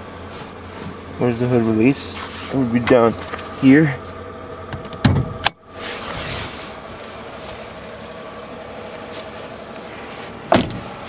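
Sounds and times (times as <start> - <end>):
engine hum: 0.0 - 11.0.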